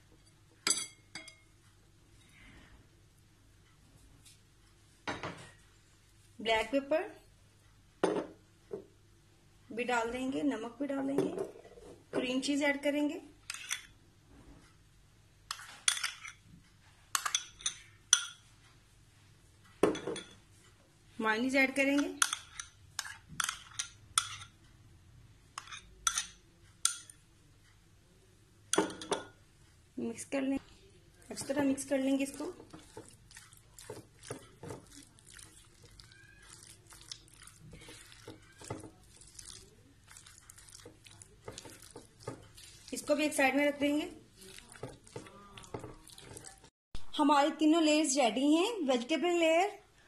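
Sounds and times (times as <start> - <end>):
spoon clinking against glass bowls: 0.6 - 1.5, 17.2 - 18.5, 25.6 - 27.2
spatula squishing food: 15.5 - 18.6, 21.8 - 24.6, 30.6 - 46.7
spatula scraping glass bowl: 31.3 - 46.7.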